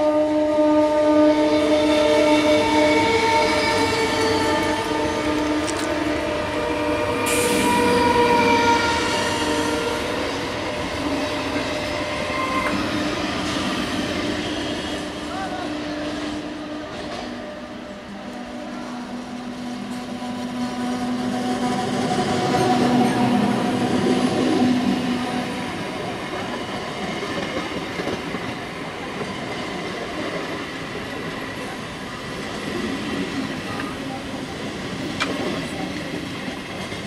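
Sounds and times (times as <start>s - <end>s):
train hum: 0.0s - 37.0s
train wheels rumbling on track: 0.0s - 37.0s.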